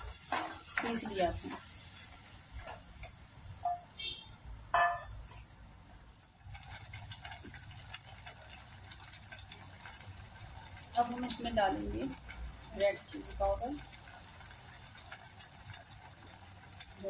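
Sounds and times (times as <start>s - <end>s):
sauce simmering and bubbling: 6.2s - 17.0s.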